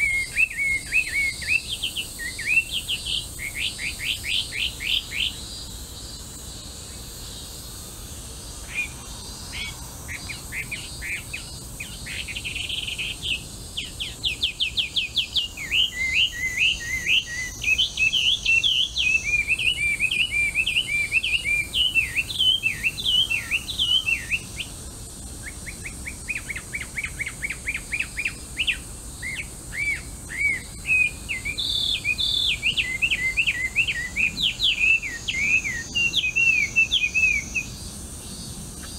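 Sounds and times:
bird singing whistled phrases: 0.0 - 5.4, 10.6 - 24.5, 25.6 - 37.7.

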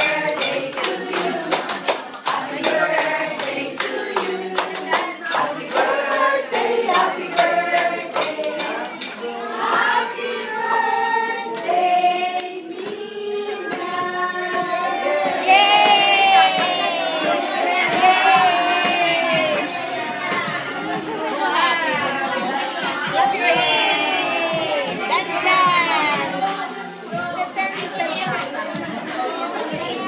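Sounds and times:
hands clapping: 0.0 - 9.9
group of voices singing: 0.0 - 30.0.

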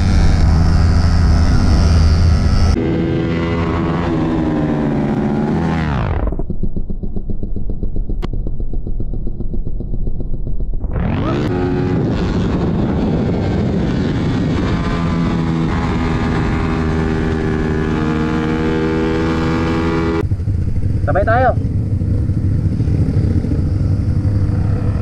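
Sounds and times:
motorcycle engine revving: 0.0 - 25.0
wind rush: 10.8 - 25.0.

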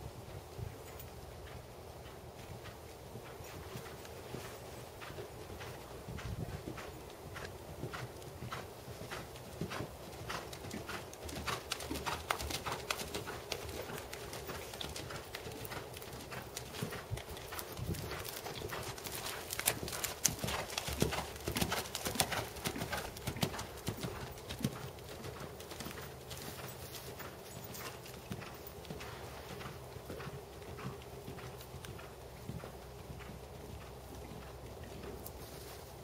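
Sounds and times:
horse hoofbeats on dirt: 0.0 - 36.0.

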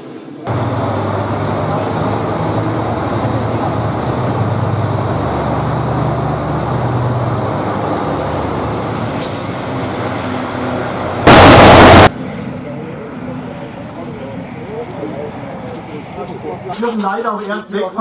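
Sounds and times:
diesel engine droning: 0.5 - 12.1.

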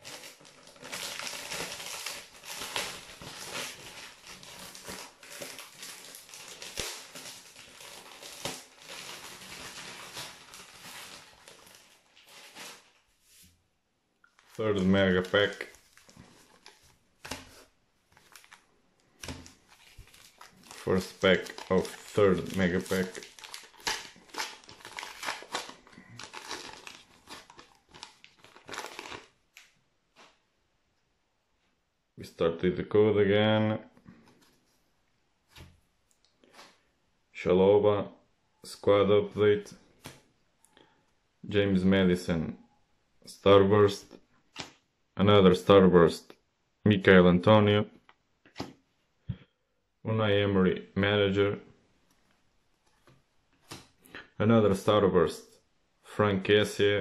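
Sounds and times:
plastic packaging crinkling: 0.0 - 13.1, 14.3 - 30.4.

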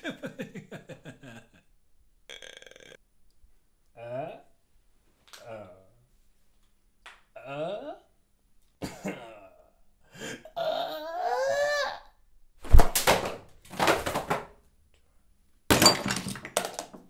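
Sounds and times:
man giggling: 0.0 - 1.7
man cooing: 2.3 - 3.0, 7.4 - 8.1, 10.5 - 12.0.

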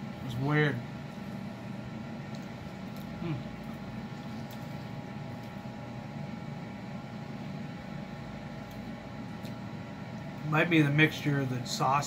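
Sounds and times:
mechanical room hum: 0.0 - 12.0
man chewing: 2.1 - 6.2, 8.4 - 10.4
man humming hmm: 3.2 - 3.6.

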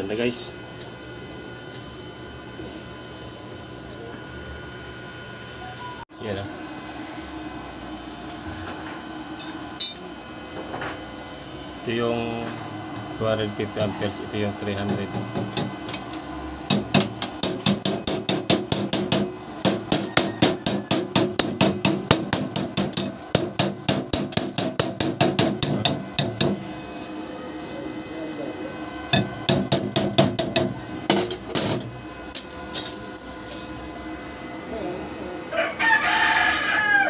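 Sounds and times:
chipping hammer striking metal: 16.7 - 26.6, 29.1 - 31.9.

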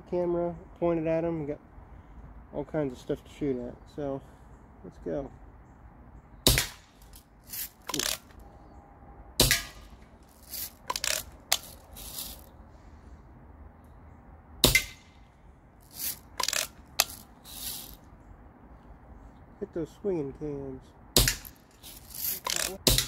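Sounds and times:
bb gun shots: 6.4 - 7.0, 9.4 - 9.9, 14.6 - 15.2, 21.2 - 21.6
metallic lever clicks: 7.8 - 8.4, 16.0 - 17.2.

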